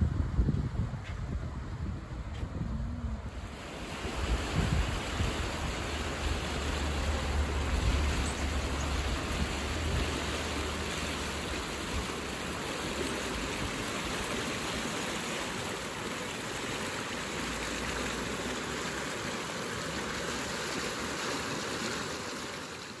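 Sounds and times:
wind rumble on microphone: 0.0 - 12.3
river rushing over rapids: 3.2 - 23.0.

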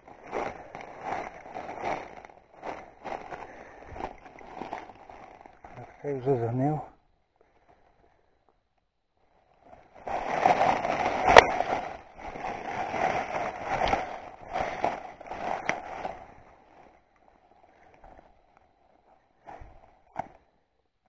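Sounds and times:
dry leaves rustling and crackling: 10.1 - 16.2.

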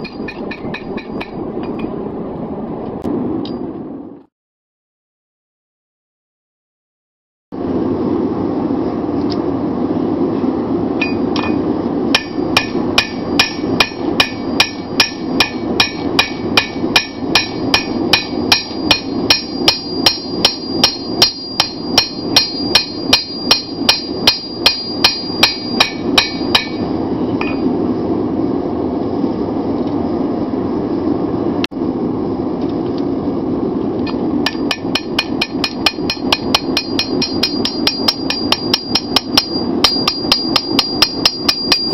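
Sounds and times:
hammer ringing on anvil: 0.0 - 1.9, 11.0 - 11.6, 12.2 - 27.6, 34.5 - 41.9.

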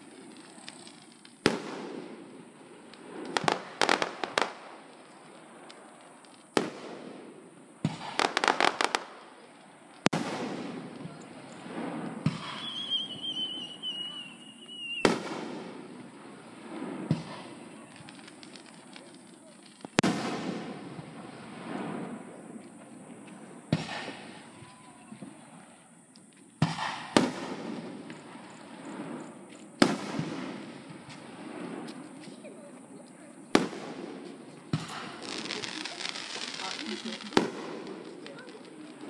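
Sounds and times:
rapid crackling pops: 0.0 - 2.1, 16.8 - 20.8, 33.6 - 39.0
fireworks booming: 0.0 - 39.0
high sliding whistle: 12.5 - 15.1.

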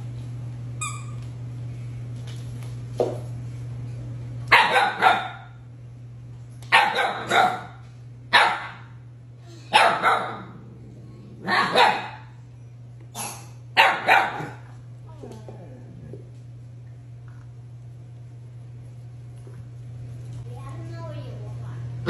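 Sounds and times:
puppy barking: 4.5 - 5.6, 6.7 - 8.9, 9.7 - 10.5, 11.4 - 12.3, 13.8 - 14.7.

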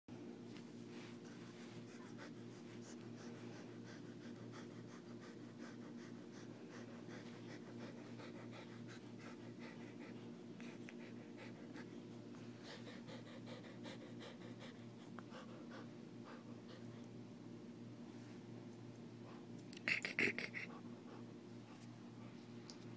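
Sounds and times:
steady low hum: 0.1 - 22.9
dog panting: 0.8 - 17.2, 19.2 - 22.6
wet mouth clicks: 19.7 - 20.7.

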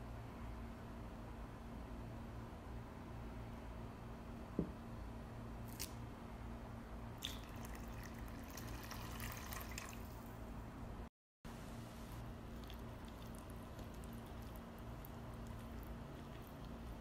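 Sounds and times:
steady low hum: 0.0 - 17.0
milk trickling into bowl: 7.2 - 10.3.

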